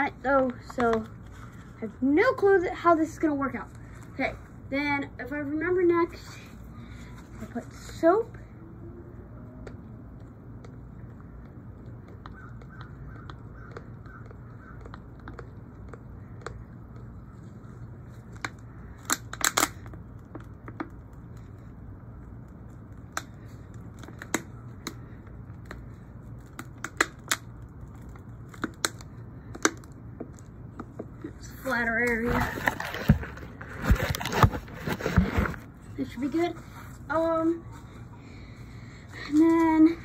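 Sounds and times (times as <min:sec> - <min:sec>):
steady low hum: 0:00.0 - 0:40.0
plastic bottle clicks and crackles: 0:18.3 - 0:21.4.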